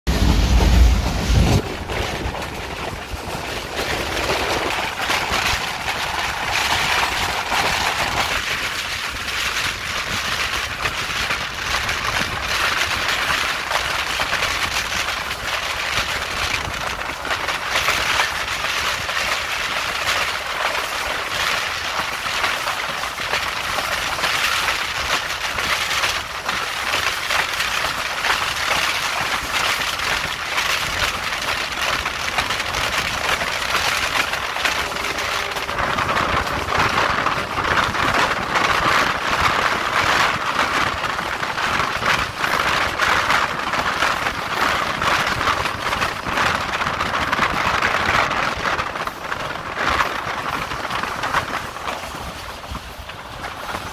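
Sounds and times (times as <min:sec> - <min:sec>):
loud low rumble: 0:00.0 - 0:08.2, 0:32.6 - 0:41.2
train running noise: 0:00.0 - 0:53.9
wind rushing at train window: 0:00.0 - 0:53.9.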